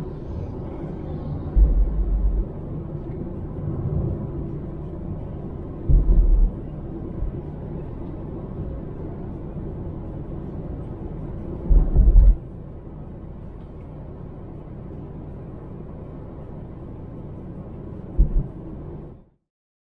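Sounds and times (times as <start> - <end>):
car road noise rumble: 0.0 - 19.3
heavy low thumps: 1.6 - 2.4, 5.9 - 6.5, 11.7 - 12.4, 18.2 - 18.5.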